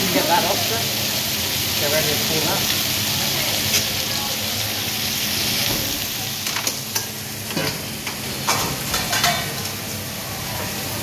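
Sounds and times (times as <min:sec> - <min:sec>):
meat sizzling on a griddle: 0:00.0 - 0:11.0
metal pans and utensils clacking: 0:05.7 - 0:09.8.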